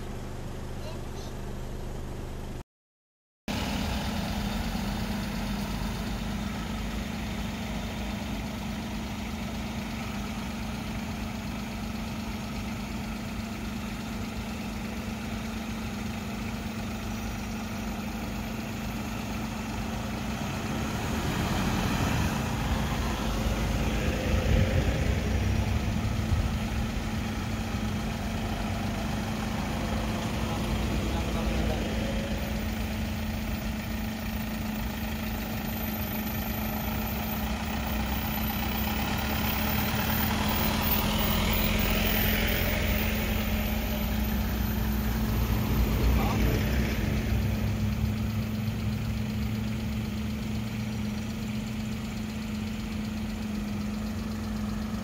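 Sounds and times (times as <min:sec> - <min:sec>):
vehicle engines idling: 0:00.0 - 0:02.6, 0:03.5 - 0:55.0
nearby engine rough revving: 0:18.8 - 0:55.0.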